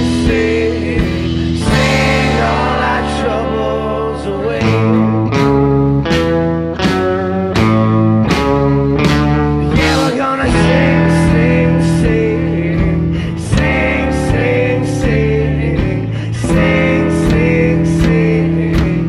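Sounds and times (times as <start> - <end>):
person singing: 0.0 - 5.7, 9.7 - 19.0
drum kit beat: 0.0 - 19.0
electric bass: 0.0 - 19.0
electric guitar: 0.0 - 19.0
acoustic guitar strumming: 1.4 - 19.0.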